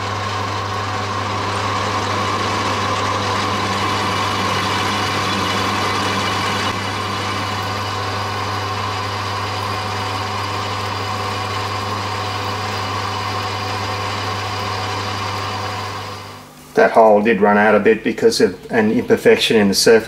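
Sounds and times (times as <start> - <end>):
drill boring metal whine: 0.0 - 16.4
lathe motor hum: 0.0 - 16.8.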